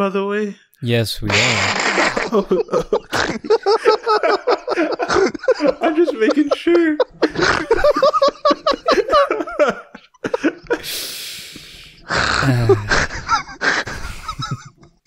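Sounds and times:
men laughing: 0:01.3 - 0:11.1, 0:12.0 - 0:15.0
breathy hiss into microphone: 0:10.8 - 0:12.6.

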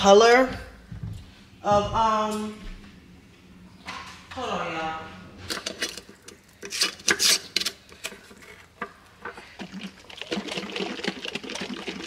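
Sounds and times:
jar handling noise: 0:05.5 - 0:12.0.

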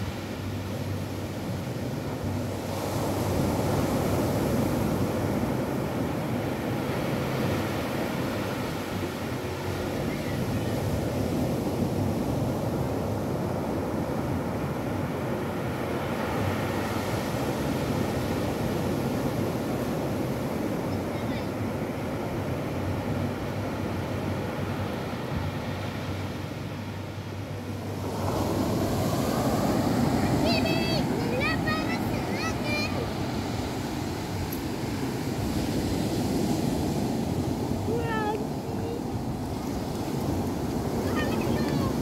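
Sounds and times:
ocean surf breaking on beach: 0:00.0 - 0:42.0.

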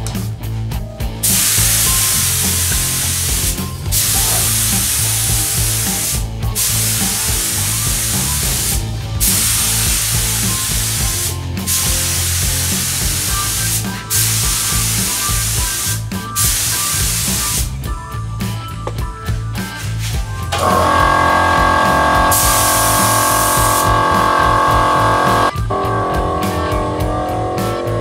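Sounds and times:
spray gun hissing: 0:01.2 - 0:17.7, 0:20.6 - 0:25.5.

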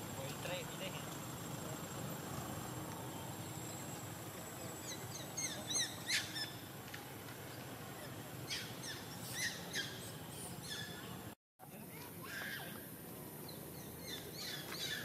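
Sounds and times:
outdoor background hum: 0:00.0 - 0:15.0
birds chirping: 0:02.7 - 0:11.4, 0:13.4 - 0:15.0.

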